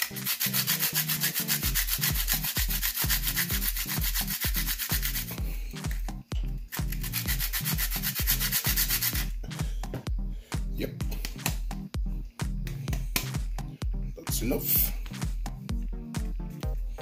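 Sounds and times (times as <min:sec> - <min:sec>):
nutmeg scraping on metal grater: 0:00.0 - 0:05.4
background music with low beat: 0:00.0 - 0:17.0.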